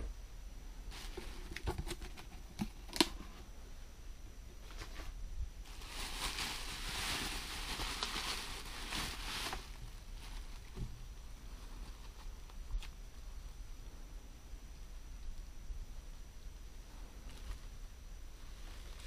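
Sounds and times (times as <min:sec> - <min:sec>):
bubble wrap crinkling: 0:05.6 - 0:10.8.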